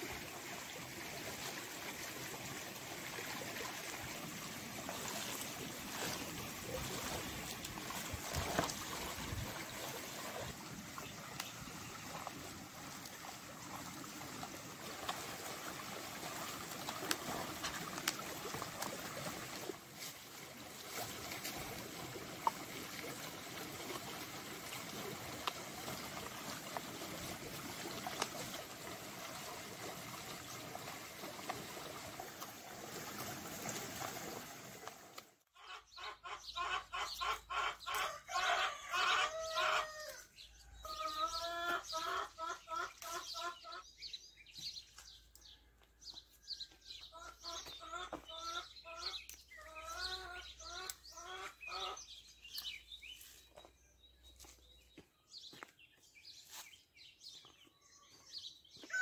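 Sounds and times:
stream running: 0.0 - 35.4
chickens clucking: 35.6 - 40.1, 40.8 - 43.8, 47.1 - 52.0.

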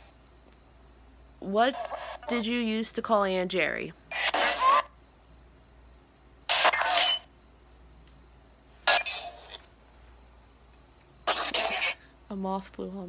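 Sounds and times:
crickets trilling: 0.0 - 13.0
radio static bursts: 4.1 - 4.9, 6.5 - 7.3.

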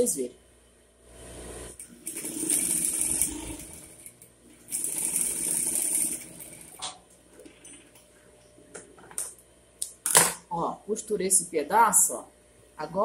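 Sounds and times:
sewing machine stitching: 1.8 - 8.0.

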